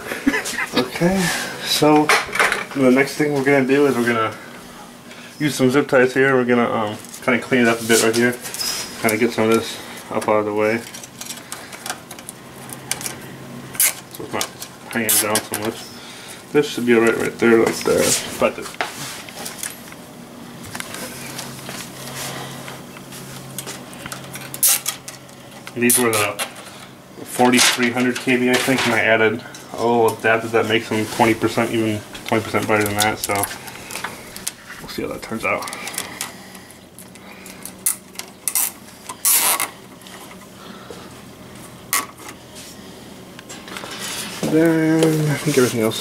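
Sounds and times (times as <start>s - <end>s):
clicks and rustling of wiring: 7.0s - 15.8s, 17.0s - 20.0s, 22.6s - 30.4s, 32.1s - 40.5s
zip ties rasping: 37.8s - 39.7s.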